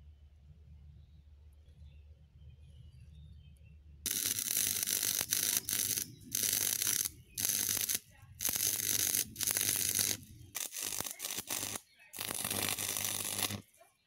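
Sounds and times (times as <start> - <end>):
welding arc crackling and hissing: 4.1 - 13.7.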